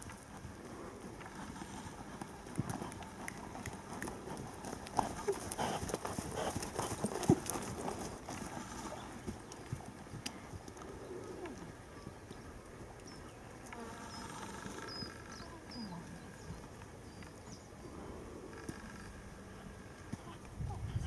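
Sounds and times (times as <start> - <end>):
horse hoofbeats on sand: 0.0 - 10.8.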